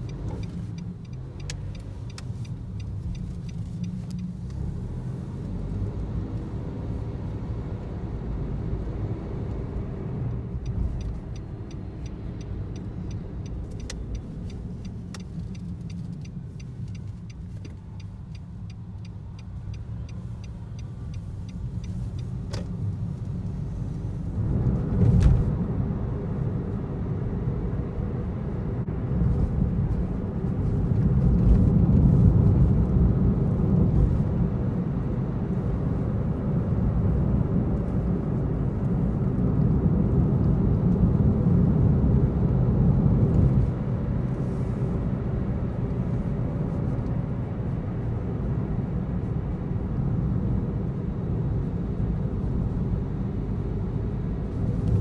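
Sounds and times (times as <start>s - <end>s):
tyre and engine rumble: 0.0s - 26.3s.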